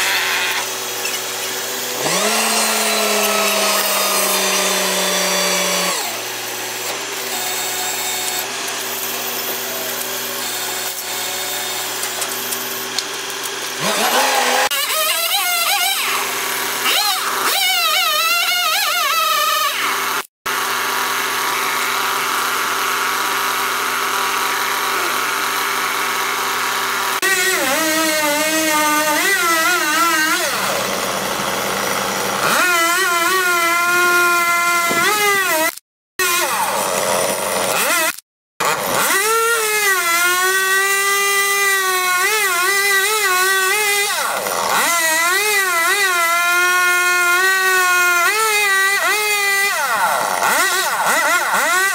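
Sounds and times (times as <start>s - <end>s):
chainsaw cutting wood: 0.0s - 51.9s.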